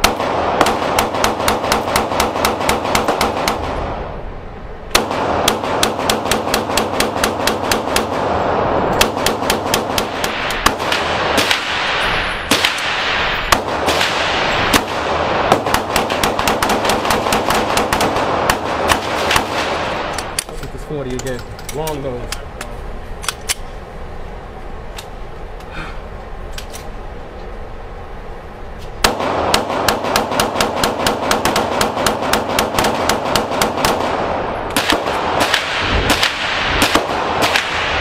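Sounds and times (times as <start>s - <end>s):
handgun firing rapid shots: 0.0s - 3.8s, 4.9s - 8.2s, 9.0s - 11.8s, 13.5s - 20.4s, 29.0s - 38.0s.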